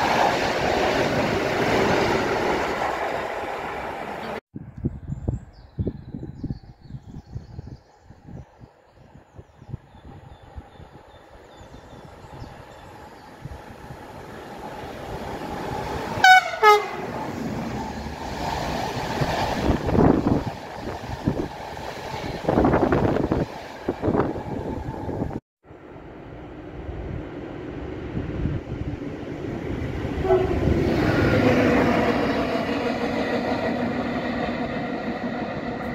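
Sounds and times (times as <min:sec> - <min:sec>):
train wheels rumbling on rails: 0:10.2 - 0:25.4, 0:26.7 - 0:35.9
locomotive horn blasts: 0:16.2 - 0:17.2, 0:30.2 - 0:30.8.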